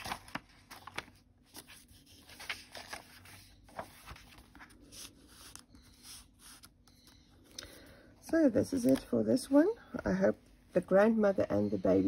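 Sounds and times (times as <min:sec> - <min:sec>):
paper rustling and sliding: 0:00.0 - 0:06.8.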